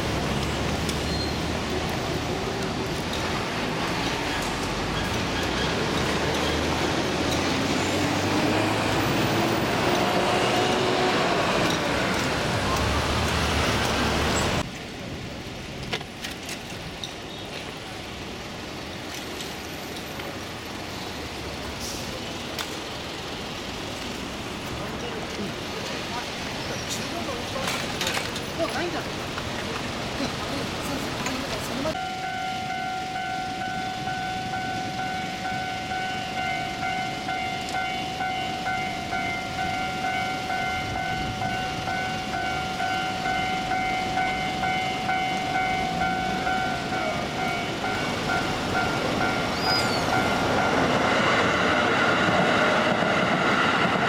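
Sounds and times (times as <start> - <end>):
quiet street background: 0.0 - 54.0
vehicles driving past: 0.0 - 54.0
engine shifting in pitch: 5.5 - 14.6
level crossing warning bell ringing: 31.7 - 51.5.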